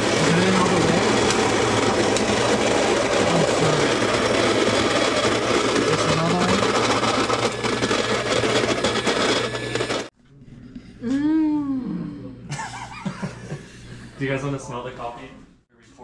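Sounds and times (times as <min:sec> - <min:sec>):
coffee grinder grinding beans: 0:00.0 - 0:10.1.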